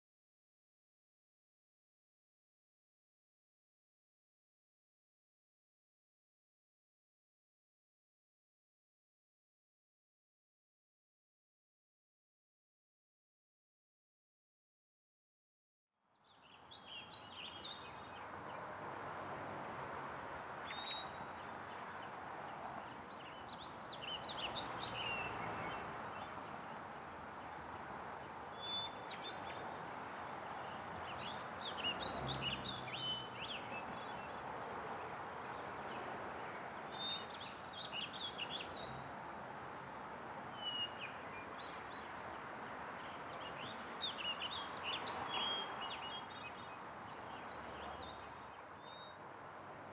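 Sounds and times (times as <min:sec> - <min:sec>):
small birds chirping: 0:16.3 - 0:18.9, 0:20.0 - 0:39.0, 0:40.3 - 0:49.2.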